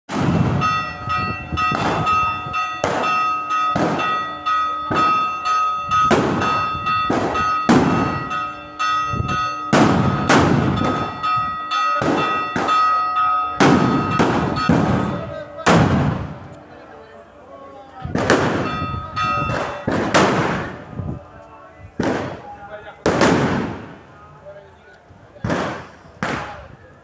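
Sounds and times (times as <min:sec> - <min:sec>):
loud sharp bangs: 0:00.1 - 0:00.9, 0:01.7 - 0:04.3, 0:04.9 - 0:05.4, 0:06.0 - 0:08.4, 0:09.5 - 0:11.3, 0:11.9 - 0:16.4, 0:18.1 - 0:20.9, 0:22.0 - 0:24.0, 0:25.4 - 0:26.6
church bell pealing: 0:00.2 - 0:17.8, 0:18.4 - 0:20.9.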